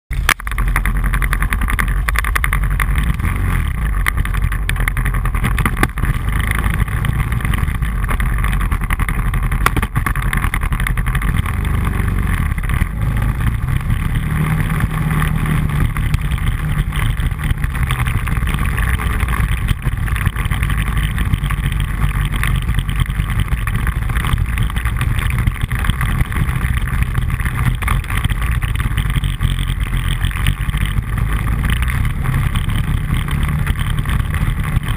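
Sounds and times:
quad bike engine running: 0:00.1 - 0:34.9.

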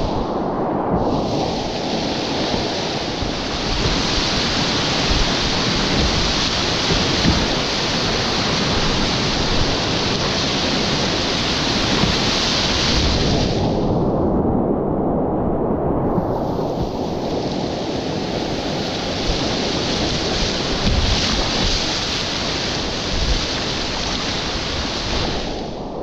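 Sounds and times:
low water rumble: 0:00.0 - 0:26.0
whitewater rapids rushing: 0:01.1 - 0:13.6, 0:17.2 - 0:25.6.

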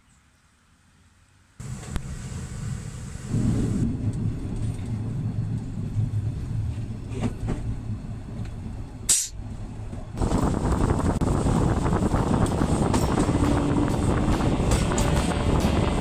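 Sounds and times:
diesel engine drone: 0:01.6 - 0:16.0
sharp hiss: 0:09.1 - 0:09.4.

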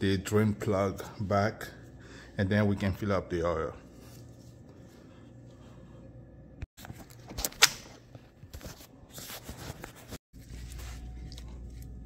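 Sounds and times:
faint hum: 0:00.0 - 0:06.7.

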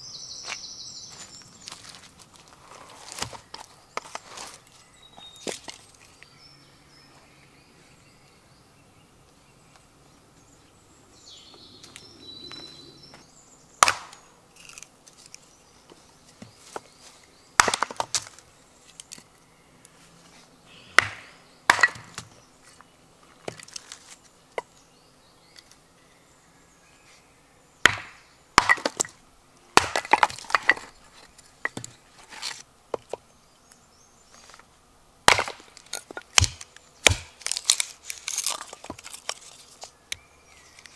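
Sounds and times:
knife splitting wood: 0:13.8 - 0:15.4, 0:17.6 - 0:19.3, 0:21.0 - 0:22.3, 0:27.9 - 0:29.2, 0:29.8 - 0:33.2, 0:35.3 - 0:39.9.

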